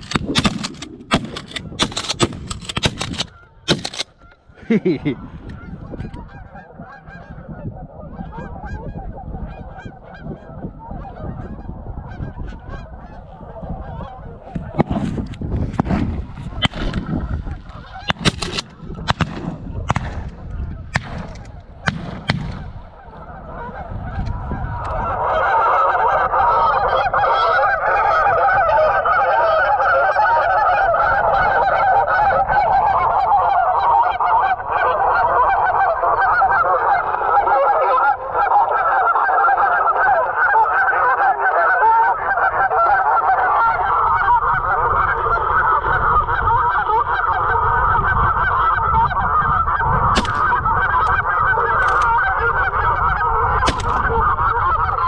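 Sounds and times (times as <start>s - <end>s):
sharp clicks: 0.0s - 4.3s, 51.8s - 52.1s, 53.7s - 54.1s
geese honking: 0.0s - 55.0s.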